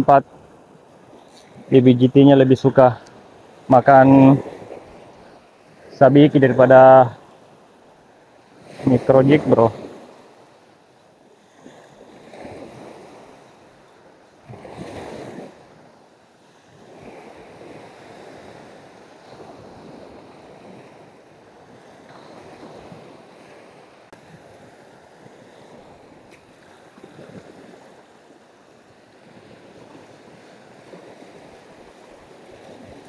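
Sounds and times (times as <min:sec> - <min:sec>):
small waves breaking on sand: 0:00.0 - 0:33.0.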